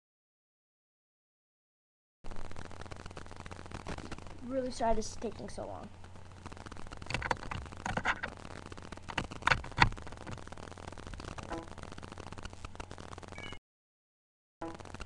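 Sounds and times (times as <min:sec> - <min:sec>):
steady low hum: 0:02.3 - 0:13.4.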